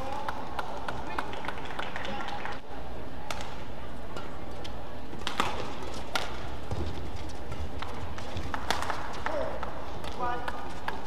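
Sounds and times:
racket hitting shuttlecock: 0:05.2 - 0:11.0.

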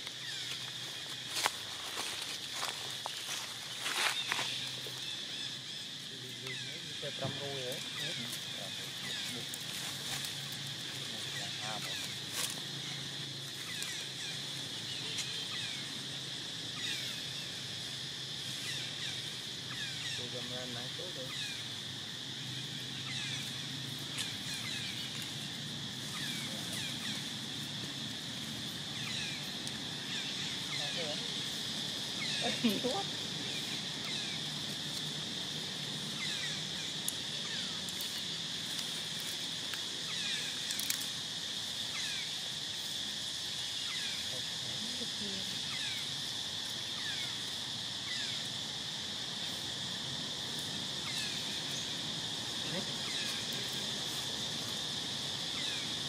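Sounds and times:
high-pitched insect drone: 0:00.0 - 0:56.0.

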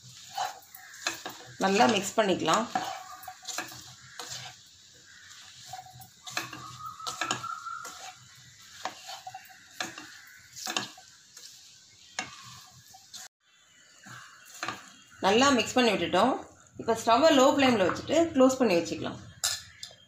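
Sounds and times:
spatula scraping a pan: 0:00.0 - 0:15.8
faint sizzle: 0:00.0 - 0:20.0.

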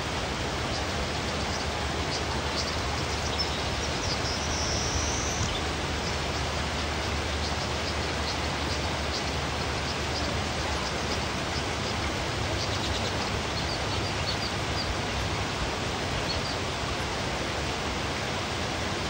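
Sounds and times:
stream water rushing: 0:00.0 - 0:19.0
faint bird chirps: 0:01.5 - 0:05.7.

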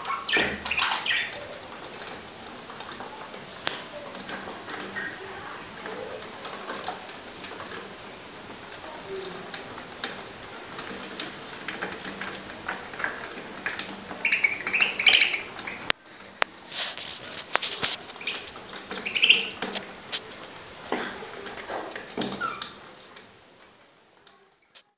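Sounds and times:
budgerigars chirping: 0:00.0 - 0:01.4, 0:14.2 - 0:15.9, 0:18.2 - 0:19.6.

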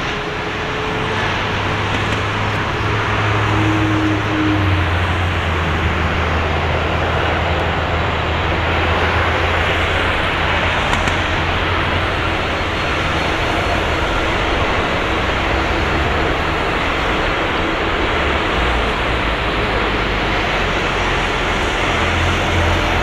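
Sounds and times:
jet engine rushing: 0:00.0 - 0:23.0.

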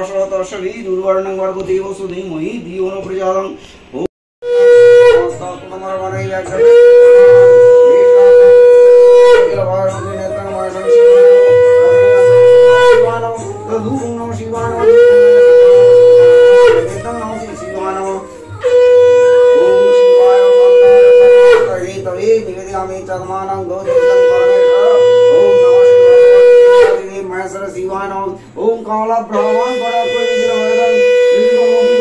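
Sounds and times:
conch shell blasts: 0:04.4 - 0:05.6, 0:06.4 - 0:09.8, 0:10.9 - 0:13.5, 0:14.7 - 0:17.2, 0:18.6 - 0:22.1, 0:23.8 - 0:27.1, 0:29.3 - 0:32.0.

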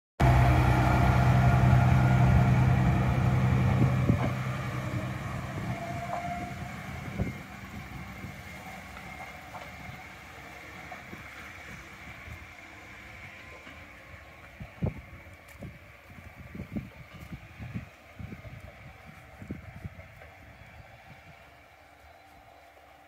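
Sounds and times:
diesel railcar engine: 0:00.2 - 0:23.0.

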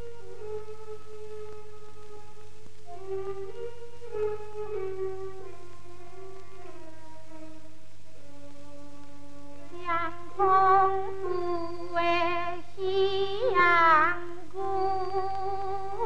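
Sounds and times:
instrumental accompaniment: 0:00.0 - 0:16.0
opera singing with vibrato: 0:09.5 - 0:16.0.

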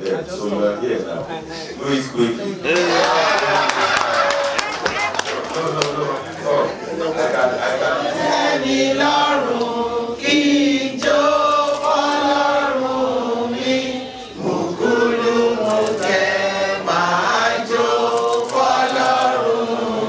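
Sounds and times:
people singing together: 0:05.6 - 0:20.0.

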